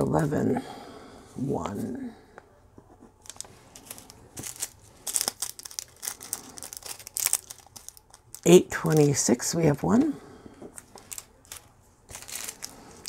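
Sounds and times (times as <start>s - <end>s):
plastic bag crinkling: 3.2s - 9.4s, 10.8s - 13.0s.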